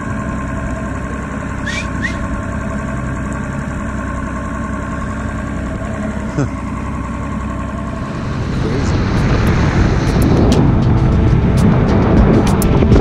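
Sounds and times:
outboard motor idling: 0.0s - 13.0s
short rising chirps: 1.6s - 2.3s.

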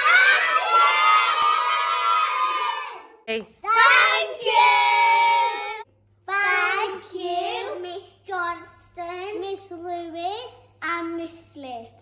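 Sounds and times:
children cheering: 0.0s - 3.1s.

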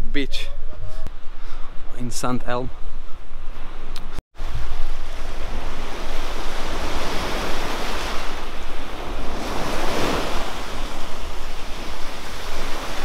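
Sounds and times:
sea waves washing onto beach: 4.4s - 13.0s.

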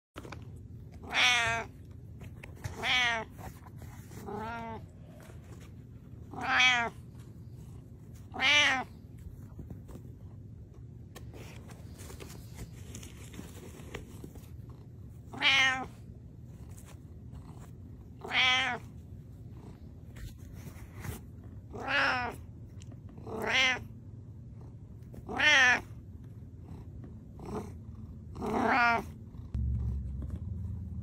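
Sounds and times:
cat meowing: 1.0s - 1.7s, 2.7s - 3.4s, 4.2s - 4.9s, 6.3s - 7.0s, 8.3s - 8.9s, 15.3s - 16.0s, 18.2s - 18.9s, 21.7s - 22.4s, 23.3s - 23.8s, 25.3s - 25.9s, 28.5s - 29.1s.

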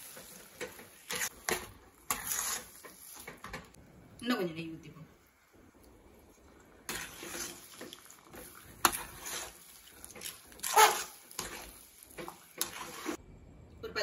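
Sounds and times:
ladle squelching in thick mixture: 6.4s - 13.2s.

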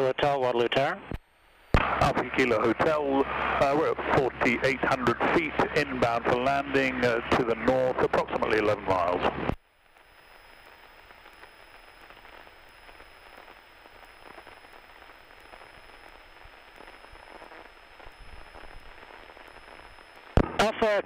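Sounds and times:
high electrical whine: 0.0s - 21.0s
radio crackling hiss: 0.0s - 21.0s.

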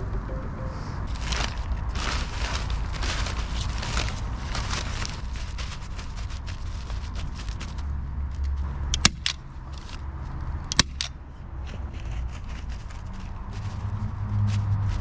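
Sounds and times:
plastic film crinkling: 1.1s - 8.5s.

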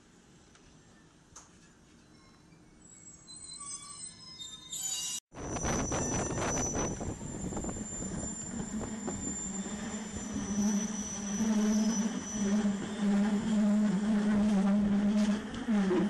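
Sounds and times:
train low hum: 5.4s - 16.0s
train running noise: 5.4s - 16.0s.

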